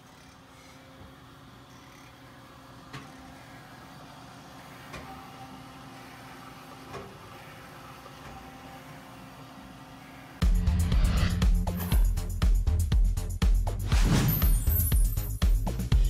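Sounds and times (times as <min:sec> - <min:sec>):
shop machinery hum: 0:00.0 - 0:12.1.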